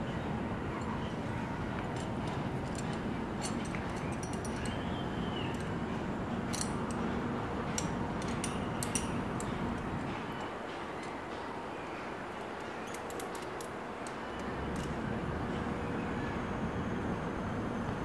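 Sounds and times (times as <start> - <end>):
steady background noise: 0.0 - 18.0
metal climbing gear clinking: 1.8 - 5.8, 6.4 - 15.0.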